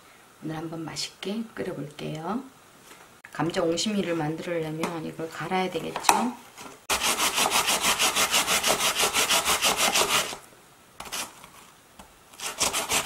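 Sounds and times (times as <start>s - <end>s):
potato rasping on grater: 6.9s - 10.4s, 12.4s - 13.0s.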